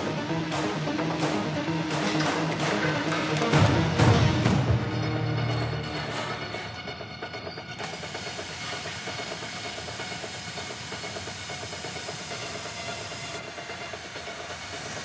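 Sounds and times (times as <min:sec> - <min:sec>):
gas spraying hiss: 0:07.8 - 0:15.0.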